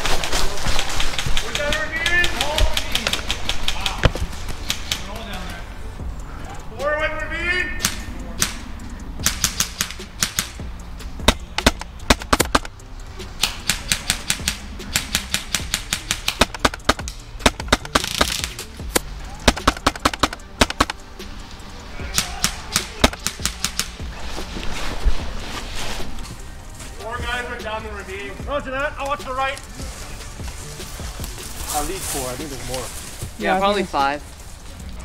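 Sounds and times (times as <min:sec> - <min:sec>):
airsoft guns firing: 0:00.0 - 0:05.1, 0:09.2 - 0:10.6, 0:13.4 - 0:18.6, 0:19.4 - 0:21.0, 0:22.1 - 0:24.0.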